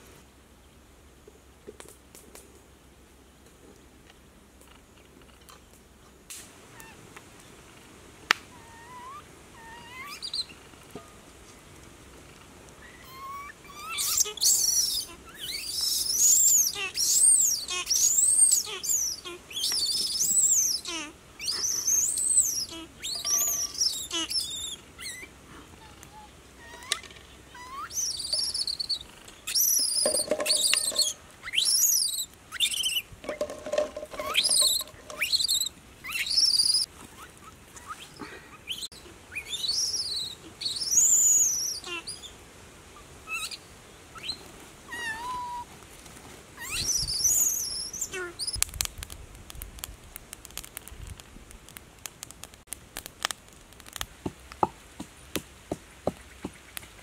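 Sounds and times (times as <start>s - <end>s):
high-pitched chirping calls: 8.7s - 10.6s, 12.8s - 42.3s, 46.6s - 48.6s.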